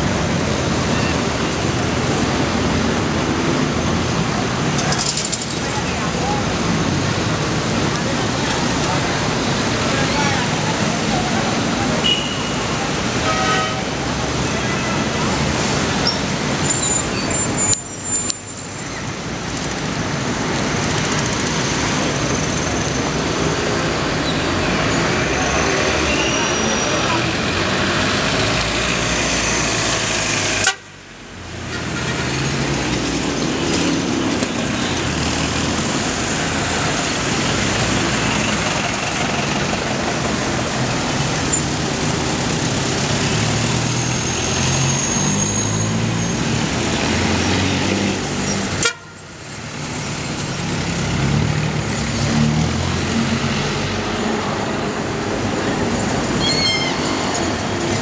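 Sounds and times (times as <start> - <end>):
cars passing: 0.0 - 58.0
car horns tooting: 12.0 - 13.9.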